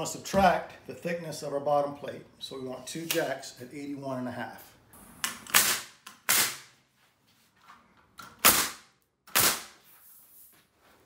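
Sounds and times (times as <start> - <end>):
nail gun firing into wood: 5.3 - 6.7, 8.4 - 9.8.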